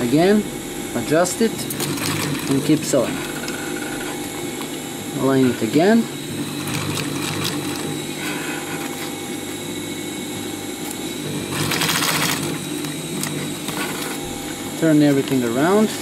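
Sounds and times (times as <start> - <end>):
sewing machine stitching: 1.1 - 4.2, 5.4 - 9.1, 11.2 - 14.2.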